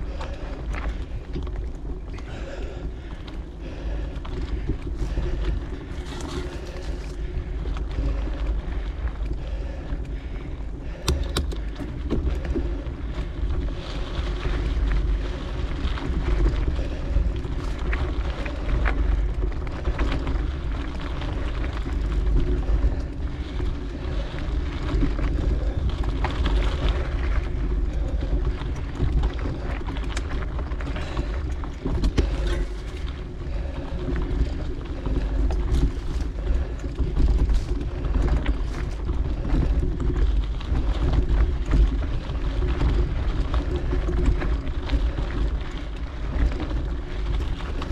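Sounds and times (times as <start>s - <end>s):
clicks and rattles from trail: 0.0s - 47.9s
steady rumble: 0.0s - 47.9s.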